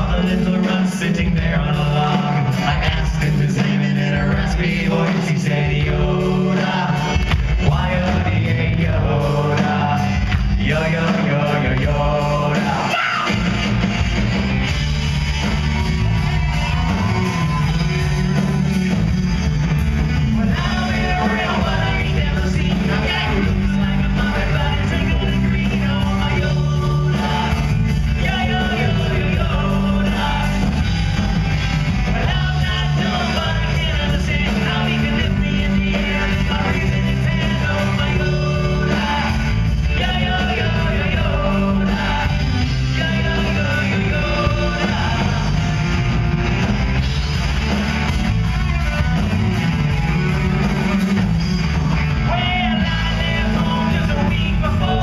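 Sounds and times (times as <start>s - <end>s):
live rock band playing: 0.0s - 55.0s.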